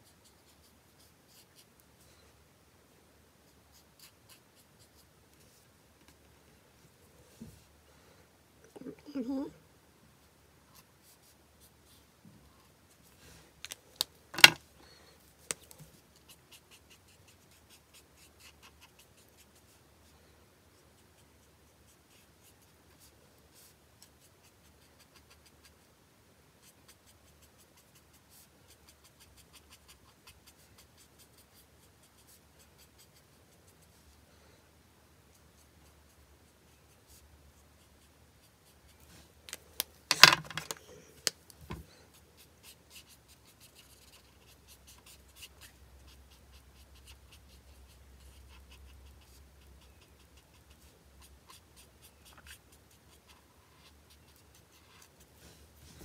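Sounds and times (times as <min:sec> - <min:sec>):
marker scratching on card: 0:03.7 - 0:05.1, 0:42.4 - 0:55.4
sharp clicks and knocks: 0:14.3 - 0:14.6.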